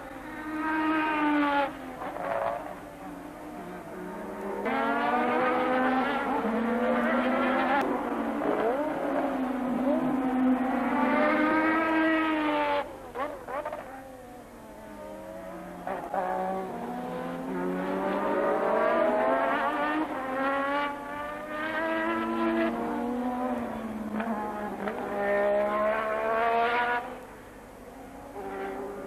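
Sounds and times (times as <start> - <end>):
race car engine passing: 3.6 - 13.8, 15.2 - 27.2, 28.0 - 29.0.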